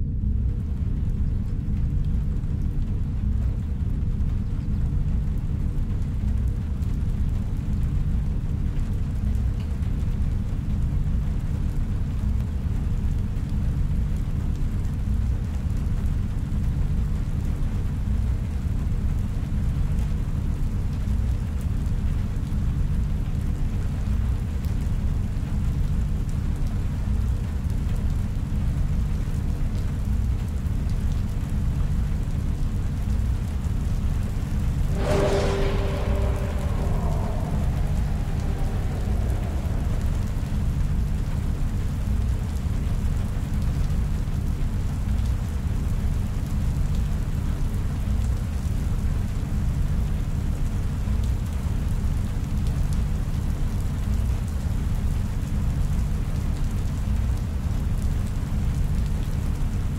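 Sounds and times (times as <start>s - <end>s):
deep rumble: 34.4s - 42.6s
faint hiss: 34.8s - 41.9s.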